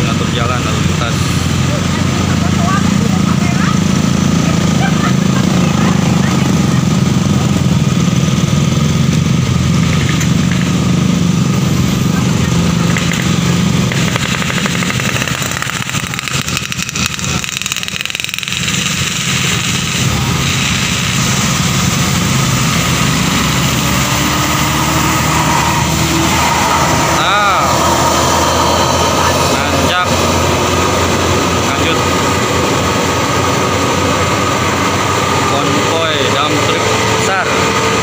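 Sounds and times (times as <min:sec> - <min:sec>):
coach engine: 0:00.0 - 0:38.0
motorcycles and cars passing: 0:00.0 - 0:38.0.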